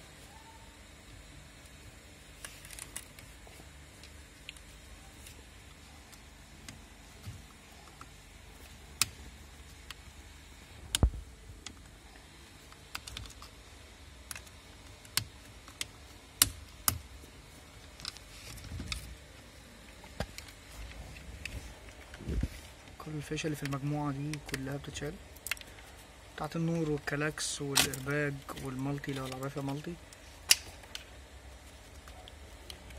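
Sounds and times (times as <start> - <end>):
sharp plastic clicks: 12.7 - 13.5, 30.4 - 31.1.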